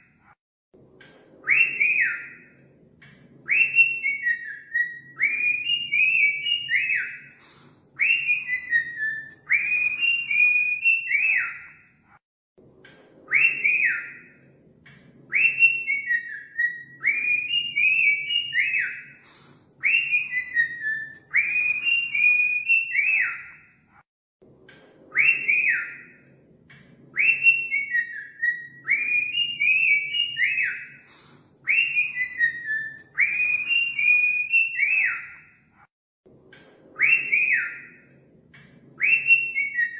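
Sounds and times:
cockatiel whistling: 3.5 - 7.4, 8.0 - 11.8, 15.3 - 23.6, 27.2 - 35.5, 37.0 - 38.0, 39.0 - 39.9.

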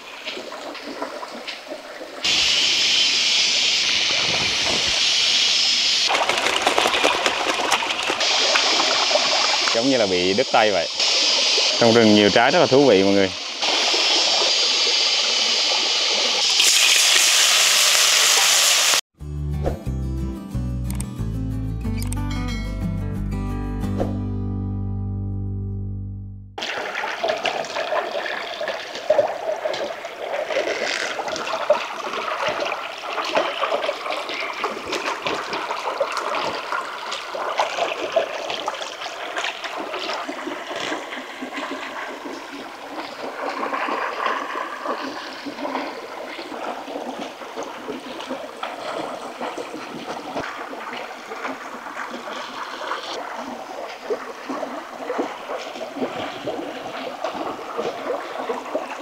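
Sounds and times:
stream water trickling: 0.0 - 5.0, 6.0 - 17.5, 26.6 - 59.0
small clicks and splashes: 6.1 - 9.8, 26.6 - 59.0.

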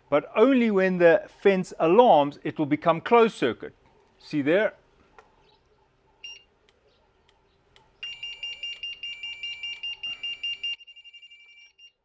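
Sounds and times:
high-pitched pulsing alarm beeps: 8.0 - 12.0.

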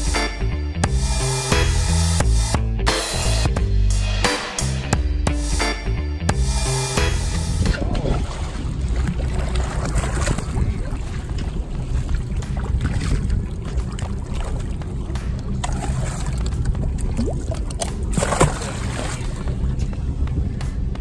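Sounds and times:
boat engine rumble: 5.5 - 21.0
sharp splash or knock: 7.7 - 19.5
water splashing: 7.7 - 19.9.

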